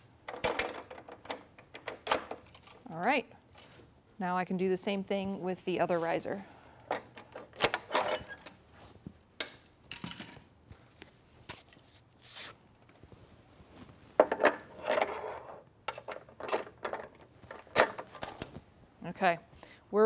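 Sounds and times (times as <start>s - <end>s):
metal clinks and knocks: 15.9s - 18.6s.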